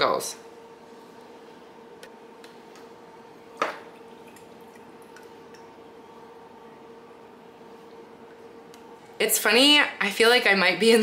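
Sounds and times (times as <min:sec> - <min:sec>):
faint steady hum: 0:00.0 - 0:11.0
small drips and ticks: 0:03.9 - 0:05.7.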